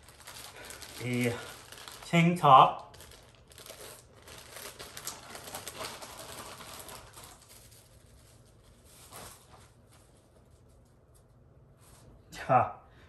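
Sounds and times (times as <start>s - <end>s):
plastic bag rustling and crackling: 0.0s - 10.8s.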